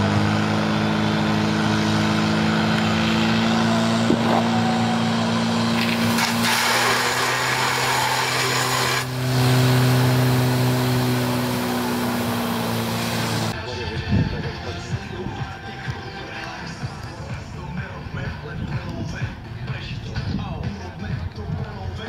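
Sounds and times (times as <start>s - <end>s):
pump engine running: 0.0s - 13.6s.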